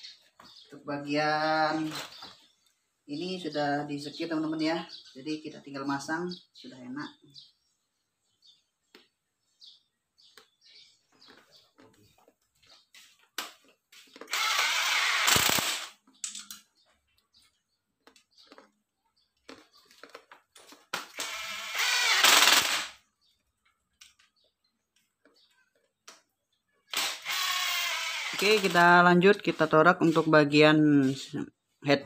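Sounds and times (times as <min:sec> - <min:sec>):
bolts clicking and clinking: 0:16.0 - 0:16.8.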